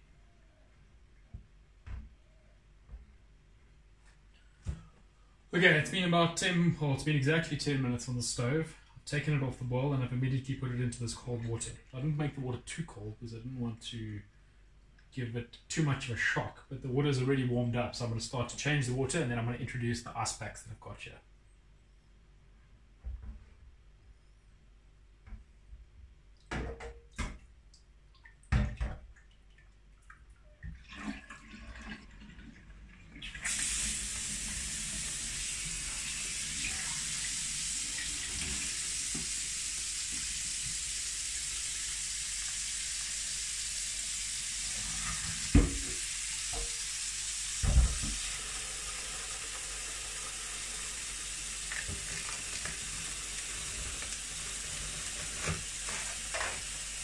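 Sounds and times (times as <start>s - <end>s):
pot and sink knocks and clinks: 26.5s - 27.4s
tap water running into sink: 28.2s - 57.0s.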